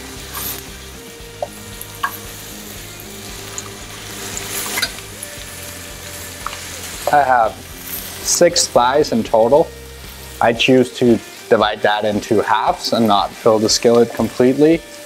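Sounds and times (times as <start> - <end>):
chicken sizzling in oil: 0.0 - 15.0
metal tongs clicking: 3.5 - 5.0.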